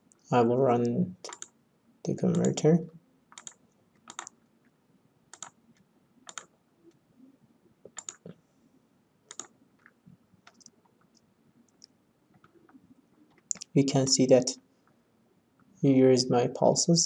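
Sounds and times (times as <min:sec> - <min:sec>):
computer mouse clicks: 0:01.2 - 0:01.5, 0:03.3 - 0:04.4, 0:05.3 - 0:05.6, 0:06.3 - 0:06.5, 0:07.9 - 0:08.4, 0:09.3 - 0:13.7.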